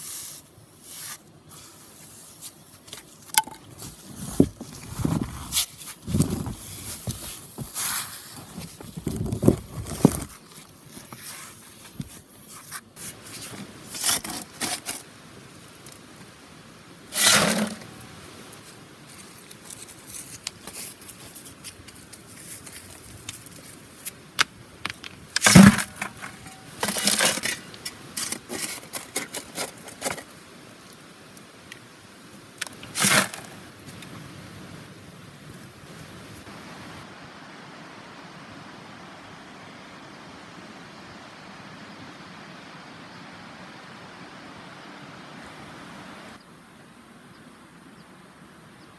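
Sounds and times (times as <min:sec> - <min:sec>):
quiet hiss: 0:00.0 - 0:48.9
rocks and gravel scraping: 0:00.9 - 0:15.1, 0:17.1 - 0:24.2, 0:24.8 - 0:30.3, 0:32.6 - 0:34.1.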